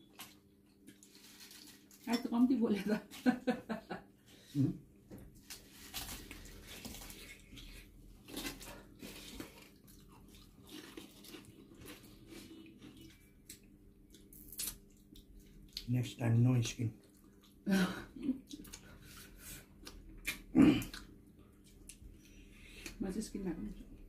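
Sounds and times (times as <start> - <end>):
wet squishes of hands mixing rice: 5.4 - 13.6
chewing and mouth smacks: 6.0 - 15.9, 17.0 - 17.6, 18.4 - 19.2, 19.8 - 23.0.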